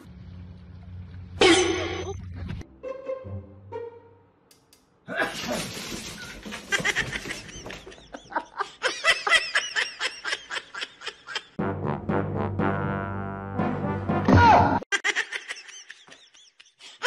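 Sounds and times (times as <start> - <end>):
person laughing hard: 6.6 - 11.6, 14.9 - 17.0.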